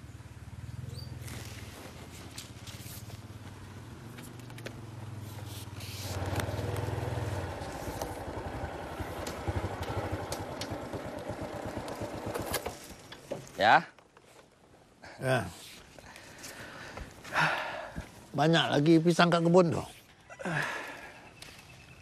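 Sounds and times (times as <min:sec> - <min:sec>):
small motorcycle engine: 0:00.0 - 0:13.1.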